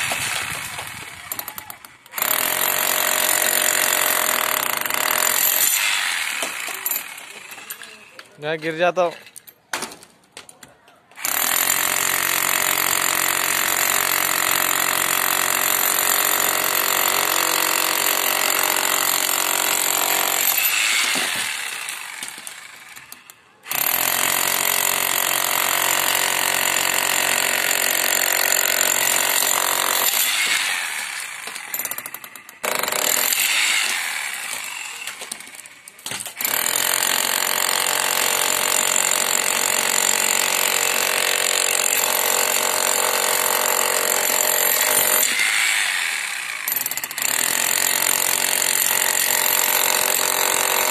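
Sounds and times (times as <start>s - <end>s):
electric chipping hammer on concrete: 0.0s - 8.3s, 11.2s - 50.9s.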